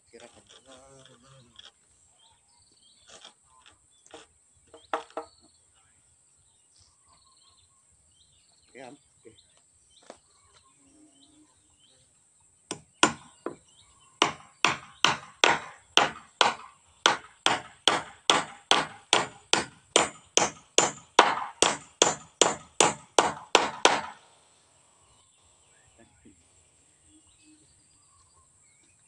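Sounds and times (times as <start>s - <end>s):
hammer striking wooden plank: 4.7s - 5.3s, 12.7s - 13.6s, 14.2s - 24.3s.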